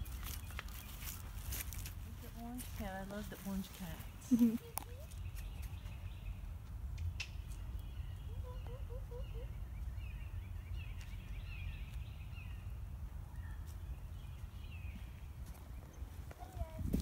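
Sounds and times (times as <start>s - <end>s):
bird chirps: 4.0s - 16.2s
wind rumbling on microphone: 12.0s - 17.0s.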